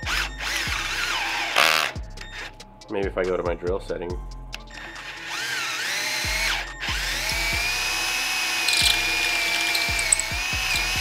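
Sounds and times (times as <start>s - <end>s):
power drill whining: 4.7s - 11.0s.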